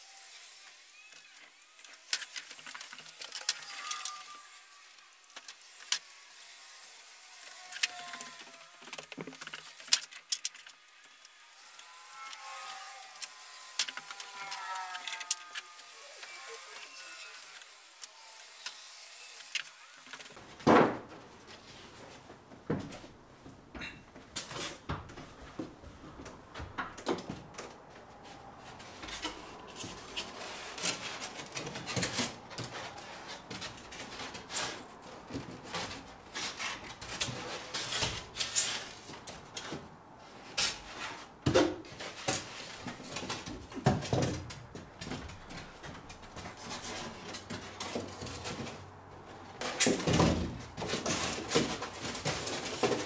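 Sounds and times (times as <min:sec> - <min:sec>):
foam board thump: 0:20.6 - 0:21.1.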